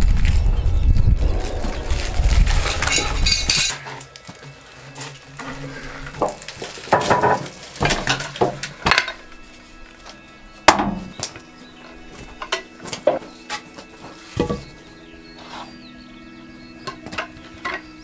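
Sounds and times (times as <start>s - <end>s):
heavy log rolling on steel bed: 1.2s - 9.3s
metallic clanks and knocks: 5.4s - 9.2s, 16.8s - 17.9s.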